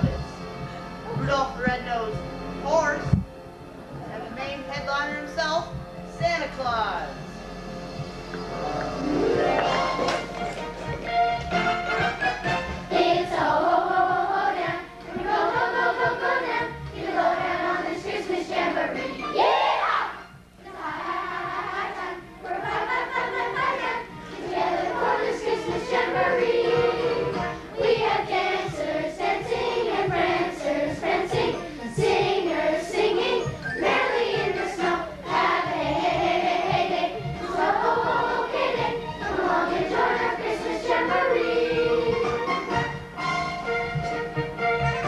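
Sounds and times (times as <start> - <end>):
children's choir singing: 8.5 - 43.8.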